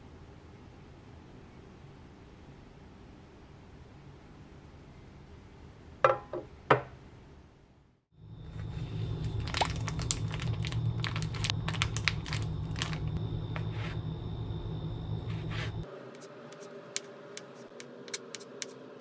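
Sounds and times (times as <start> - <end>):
low hum: 8.1 - 19.0
plastic packet crinkling: 8.5 - 13.2.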